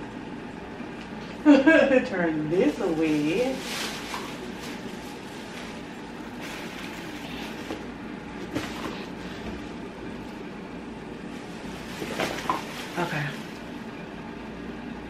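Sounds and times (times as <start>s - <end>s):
plastic bags rustling: 2.4s - 10.4s, 11.2s - 13.9s.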